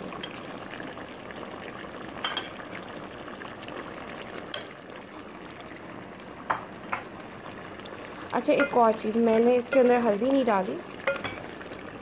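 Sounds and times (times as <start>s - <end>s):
curry bubbling in pot: 0.0s - 12.0s
wooden spoon knocking pot: 8.5s - 10.1s.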